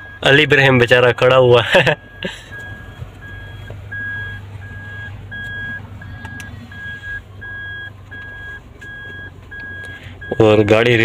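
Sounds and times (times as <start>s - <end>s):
low engine hum: 0.0s - 11.0s
short high warning beeps: 2.1s - 10.9s.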